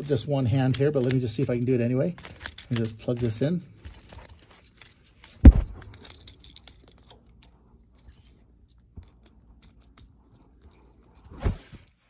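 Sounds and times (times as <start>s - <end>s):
metal connector clicks and rattles: 0.0s - 10.2s
loud thump: 5.4s - 5.8s.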